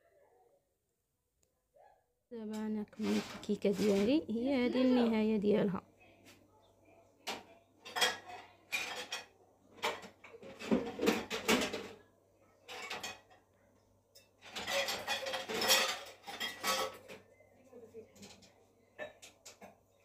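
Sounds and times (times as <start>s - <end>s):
dishes and cutlery clattering: 2.5s - 5.0s, 7.2s - 12.0s, 12.6s - 17.4s, 18.0s - 20.0s.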